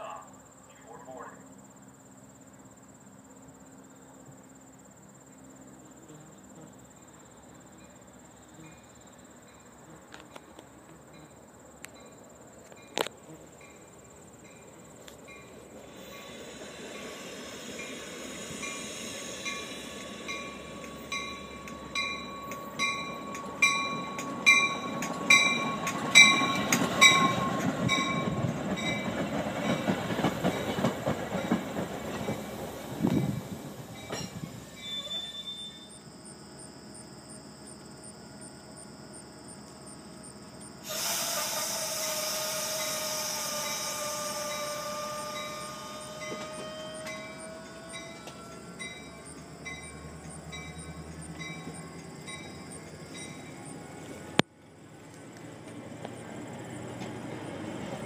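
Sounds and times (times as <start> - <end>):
train rumble: 6.8 - 58.0
train bell ringing: 13.6 - 32.5, 33.2 - 36.8, 41.8 - 53.9
train brakes squealing: 13.6 - 37.1, 39.6 - 54.0
wheels clicking over rail joints: 14.5 - 35.0, 42.8 - 58.0.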